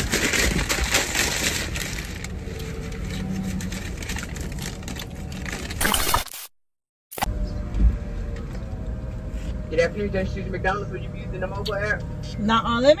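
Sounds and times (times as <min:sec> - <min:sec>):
paper bag crinkling: 0:00.0 - 0:06.6
car interior hum: 0:07.2 - 0:13.0.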